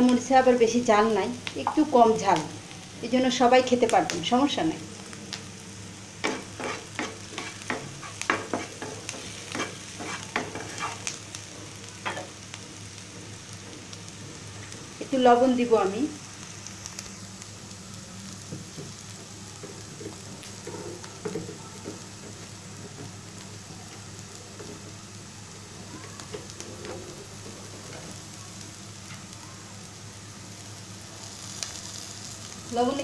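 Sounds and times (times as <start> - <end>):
food sizzling in oil: 0.0 - 33.0
spatula scraping and clicking: 6.2 - 11.2.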